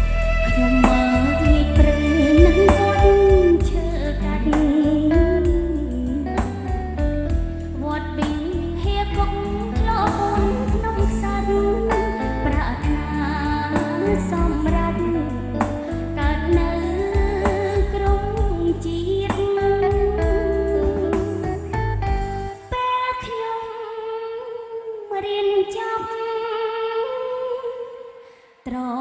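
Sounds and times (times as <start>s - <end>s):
woman singing into microphone: 0.0s - 21.8s, 22.5s - 29.0s
instrumental backing music: 0.0s - 27.9s.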